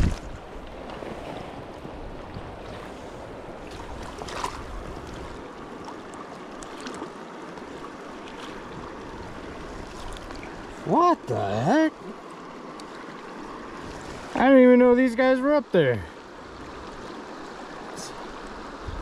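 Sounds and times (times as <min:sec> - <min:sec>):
stream rushing over rocks: 0:03.2 - 0:19.0.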